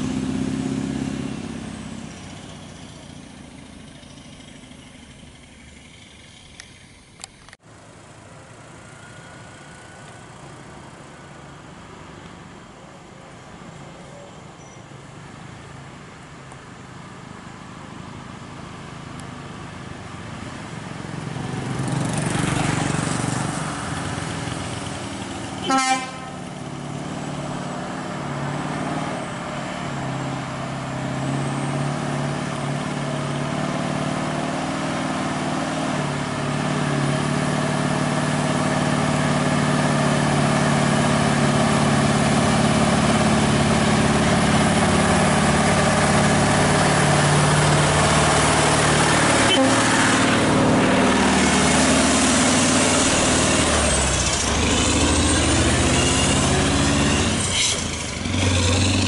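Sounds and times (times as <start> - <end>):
vehicle passing: 0.0 - 6.6, 20.3 - 59.0
truck diesel engine pulling: 0.0 - 11.9, 16.7 - 59.0
short horn beep: 49.4 - 50.0.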